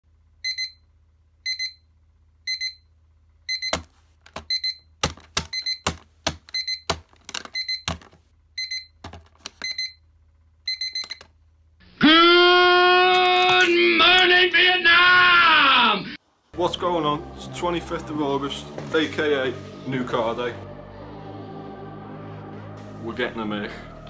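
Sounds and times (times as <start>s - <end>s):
alarm clock beeping: 0.4s - 0.8s, 1.5s - 1.8s, 2.5s - 2.9s, 3.5s - 4.9s, 5.5s - 7.9s, 8.6s - 9.0s, 9.6s - 10.0s, 10.7s - 11.2s
loud music: 16.6s - 24.0s.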